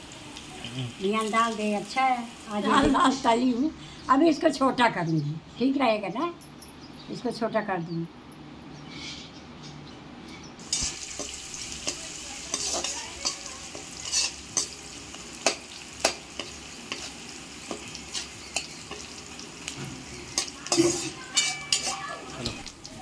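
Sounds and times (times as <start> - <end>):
onions sizzling in hot oil: 0.0 - 3.4, 10.6 - 23.0
metal ladle scraping a pan: 10.6 - 14.8, 19.8 - 22.6.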